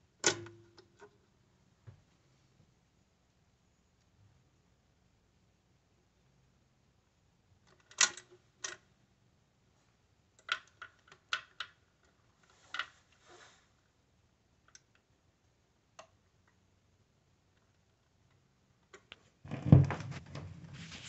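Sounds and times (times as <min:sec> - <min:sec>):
turntable mechanism clicking and clunking: 0:00.2 - 0:00.8
short rustle: 0:19.9 - 0:21.0.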